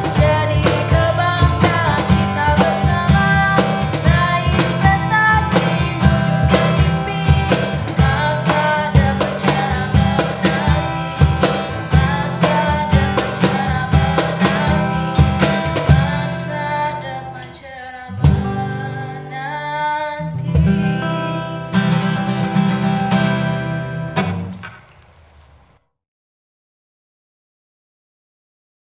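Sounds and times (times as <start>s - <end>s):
cajon beats: 0.0s - 16.4s, 20.4s - 25.2s
woman singing: 0.0s - 22.3s
strummed acoustic guitar: 0.0s - 24.7s.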